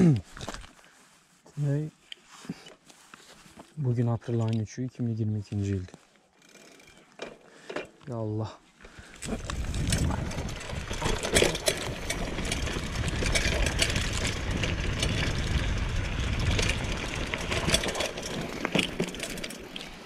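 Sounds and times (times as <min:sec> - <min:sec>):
bike clicks and rattles: 0:05.9 - 0:08.2, 0:08.8 - 0:20.0
tyres crunching over dirt: 0:07.0 - 0:20.0
wind buffeting microphone: 0:09.2 - 0:17.9.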